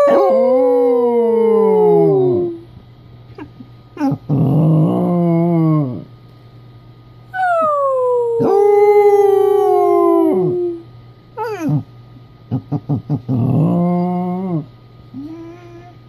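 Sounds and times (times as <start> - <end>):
dog howling: 0.0 - 2.6, 7.4 - 10.8
dog yelping: 11.4 - 11.8.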